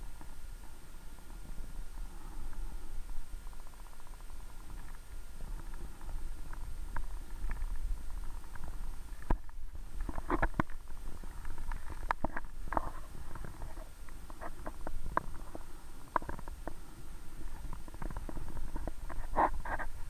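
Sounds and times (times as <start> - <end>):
underwater rumble of moving water: 0.0 - 20.0
sharp clicks and pops: 6.4 - 16.8.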